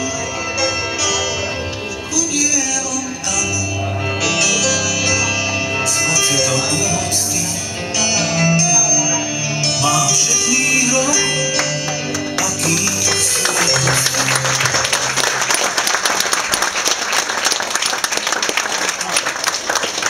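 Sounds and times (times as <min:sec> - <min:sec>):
song with instrumental backing: 0:00.0 - 0:15.7
audience applause: 0:11.6 - 0:20.0.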